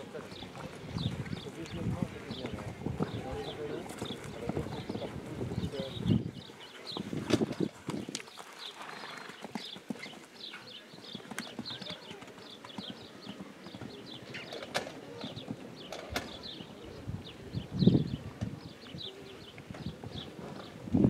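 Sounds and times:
horse hooves cantering on sand: 0.0s - 16.8s.

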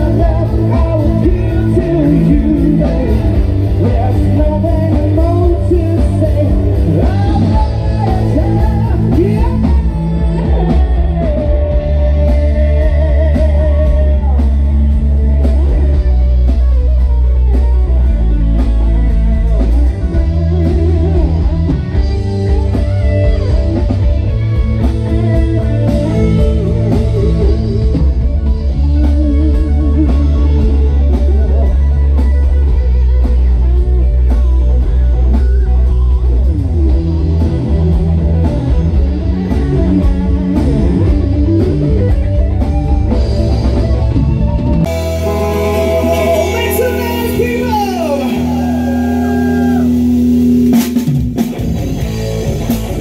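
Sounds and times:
man singing: 0.0s - 15.0s, 45.2s - 49.9s
bass guitar: 0.0s - 53.0s
drum kit: 0.0s - 53.0s
electric guitar: 0.0s - 53.0s
keyboard: 0.0s - 53.0s.

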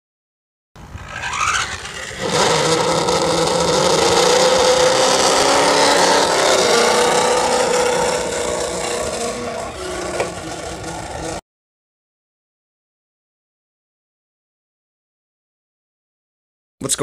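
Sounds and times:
vehicle motor running: 0.8s - 11.4s.

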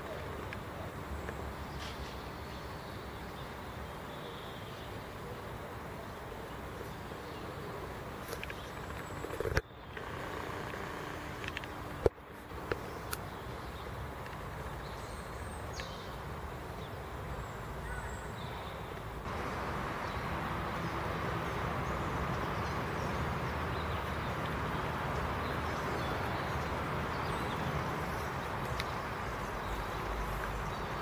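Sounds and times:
steady rain falling: 18.8s - 31.0s.

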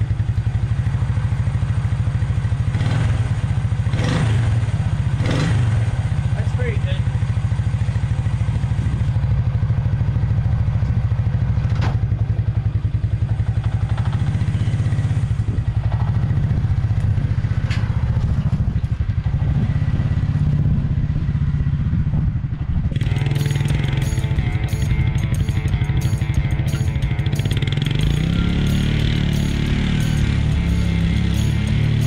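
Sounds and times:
quad bike engine running: 0.0s - 32.0s
music: 23.0s - 32.0s.

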